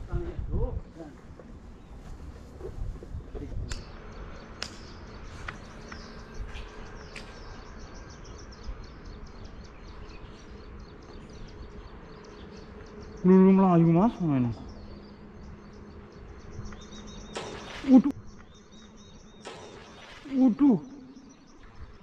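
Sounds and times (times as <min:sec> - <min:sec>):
sharp clicks: 0:03.7 - 0:04.0
insects chirping: 0:03.8 - 0:22.0.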